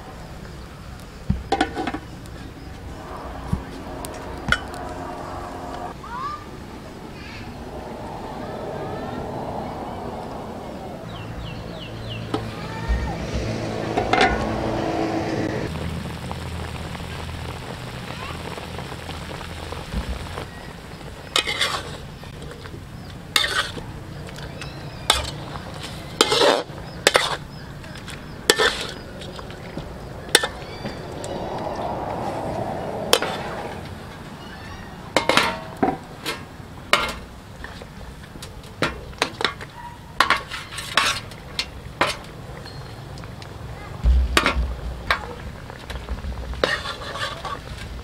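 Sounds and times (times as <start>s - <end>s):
sauce sizzling: 14.5s - 23.7s
metal spatula scraping a wok: 21.4s - 22.0s, 23.4s - 23.8s, 26.2s - 27.4s, 28.5s - 29.0s, 46.6s - 47.8s.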